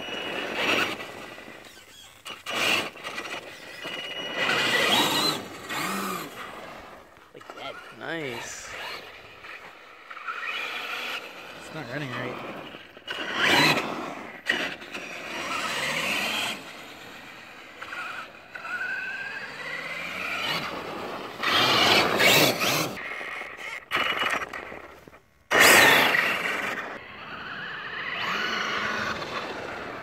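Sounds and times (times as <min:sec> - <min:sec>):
electric motor whining: 0:00.0 - 0:23.0
tires scraping over ice: 0:00.0 - 0:30.0.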